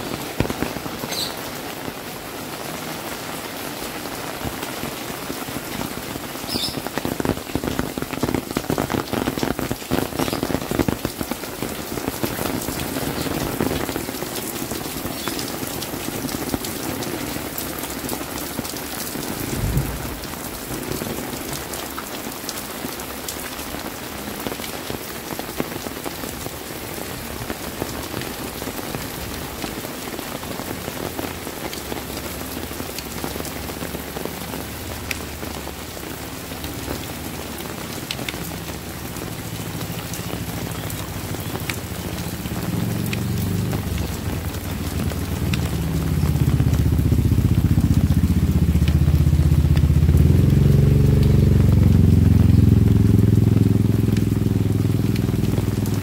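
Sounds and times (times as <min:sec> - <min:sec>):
close drips and splashes: 0:00.0 - 0:56.0
rain on roofs and concrete: 0:00.0 - 0:56.0
low thump: 0:19.4 - 0:20.5.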